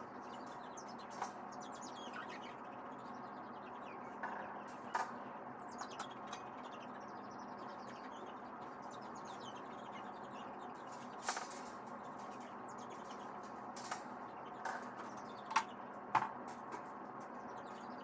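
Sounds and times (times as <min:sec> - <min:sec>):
faint high chirps and squeaks: 0:00.0 - 0:16.0, 0:16.6 - 0:18.0
metal wire panels clanking: 0:10.8 - 0:15.8.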